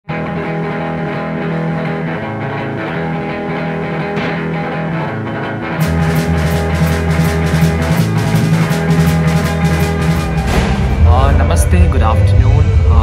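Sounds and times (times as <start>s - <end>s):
sustained guitar chords: 0.1s - 13.0s
drums and bass beat: 5.8s - 13.0s.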